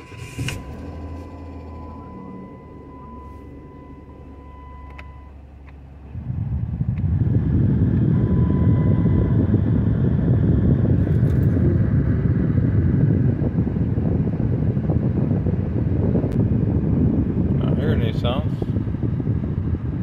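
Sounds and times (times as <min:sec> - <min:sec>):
blower fan rush of air: 0:00.0 - 0:20.0.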